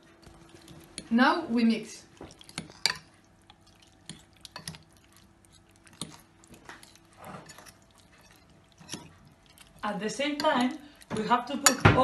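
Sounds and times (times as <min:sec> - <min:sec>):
fork stirring wet batter: 0:00.2 - 0:11.8.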